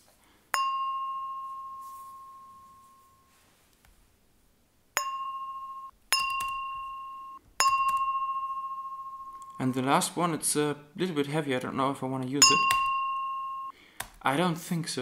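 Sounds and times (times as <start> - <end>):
glass ringing when flicked: 0.5 - 3.3, 5.0 - 9.6, 12.4 - 13.7.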